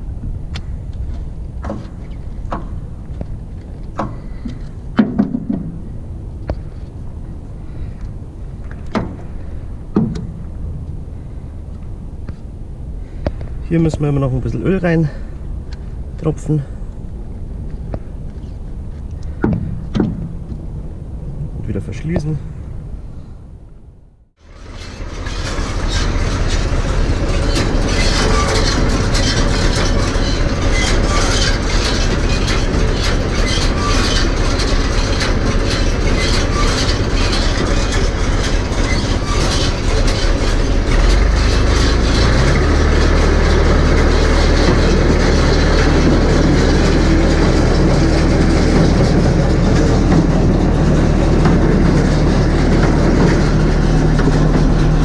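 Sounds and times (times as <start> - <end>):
baler mechanical clatter: 24.4 - 55.0
tractor engine running: 24.4 - 55.0.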